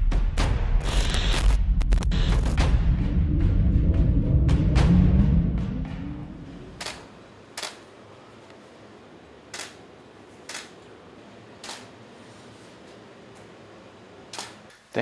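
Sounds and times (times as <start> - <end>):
music track: 1.8 - 6.8
camera shutter clicking: 6.8 - 7.0, 7.6 - 7.8, 9.5 - 9.8, 10.5 - 10.8, 14.3 - 14.6.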